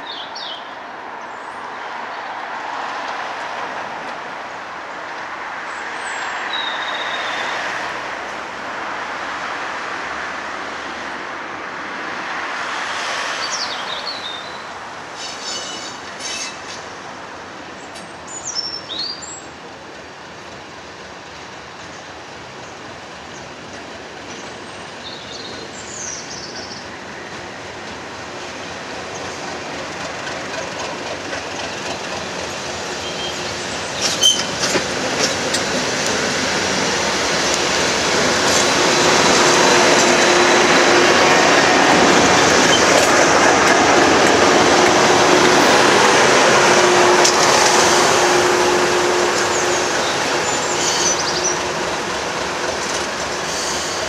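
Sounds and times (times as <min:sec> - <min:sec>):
diesel locomotive engine: 0:19.4 - 0:54.0.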